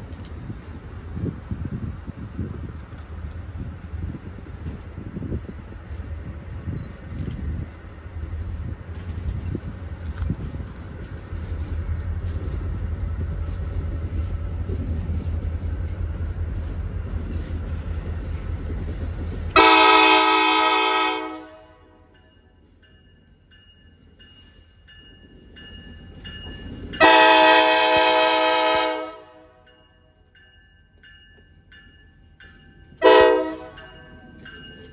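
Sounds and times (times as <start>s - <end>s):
train rumble: 0.0s - 34.9s
train air horn blasts: 19.6s - 22.1s, 27.0s - 29.6s, 33.0s - 33.8s.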